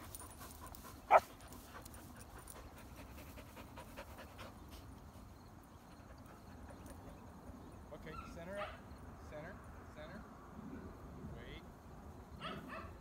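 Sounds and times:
dog panting: 0.0s - 7.4s.

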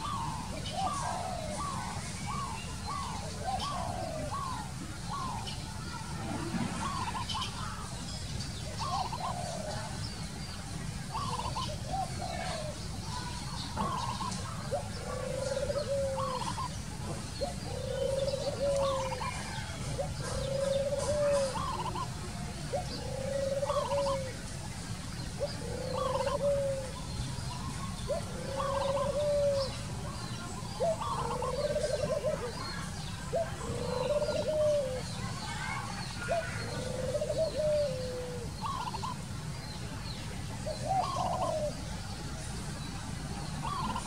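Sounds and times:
dove cooing: 0.0s - 8.0s, 8.7s - 10.0s, 11.1s - 24.4s, 25.2s - 39.3s, 40.6s - 41.9s, 43.6s - 44.0s.

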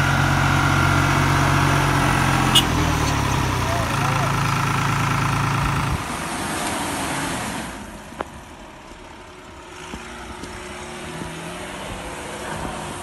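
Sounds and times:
tractor diesel engine idling: 0.0s - 6.4s.

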